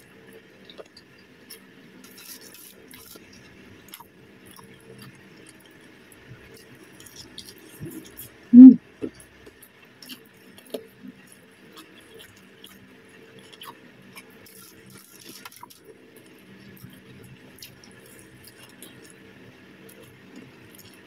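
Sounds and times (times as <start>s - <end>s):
faint chewing crunches: 0.3s - 8.4s, 9.1s - 21.0s
mouth clicks: 8.6s - 8.8s.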